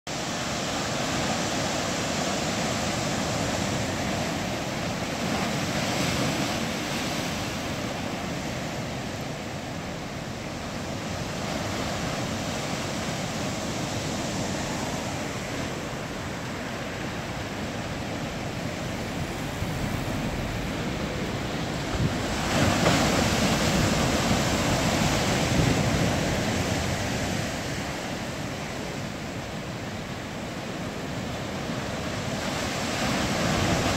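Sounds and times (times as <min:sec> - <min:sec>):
surf breaking over rocks: 0:11.5 - 0:29.0.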